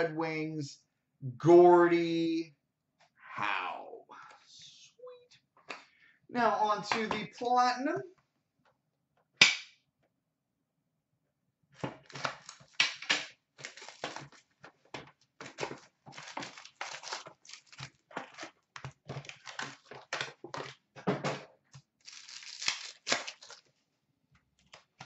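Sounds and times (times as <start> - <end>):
plastic wrap and paper tearing: 12.0 - 13.0, 13.6 - 14.7, 15.4 - 20.8, 22.0 - 23.7.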